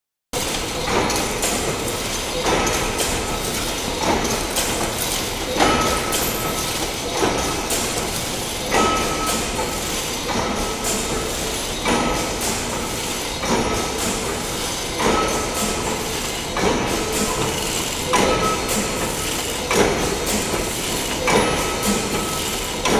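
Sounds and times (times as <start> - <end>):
loom machine clatter: 0.4 - 22.9
heavy knock with metallic ring: 8.7 - 9.7.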